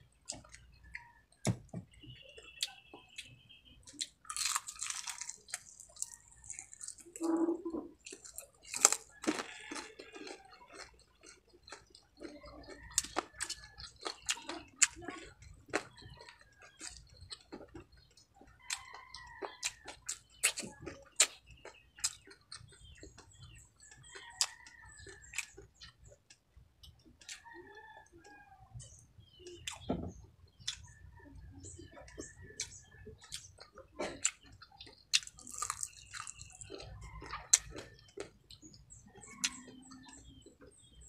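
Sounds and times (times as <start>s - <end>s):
chewing crispy fried chicken: 0.0s - 41.0s.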